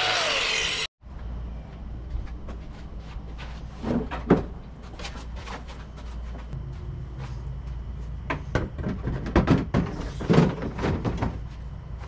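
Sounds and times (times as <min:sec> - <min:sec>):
steady low hum: 0:01.0 - 0:12.0
knocks and clatter on plastic panels: 0:08.3 - 0:11.5.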